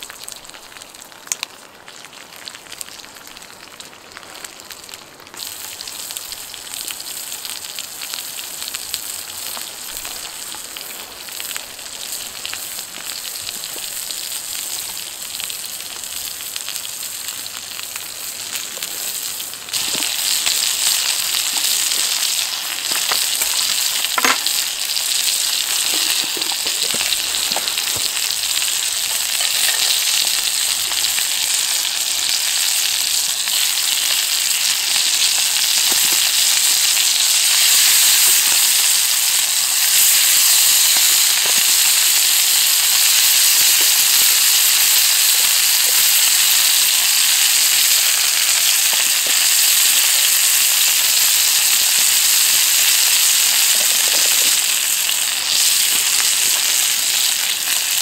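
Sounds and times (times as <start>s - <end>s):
sausage sizzling in a pan: 0.0s - 58.0s
fat popping and spitting: 25.6s - 28.5s.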